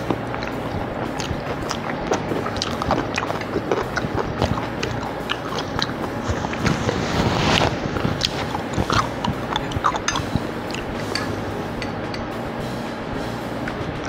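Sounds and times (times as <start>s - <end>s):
person chewing food: 0.0s - 12.4s
short rush of noise: 6.2s - 8.7s.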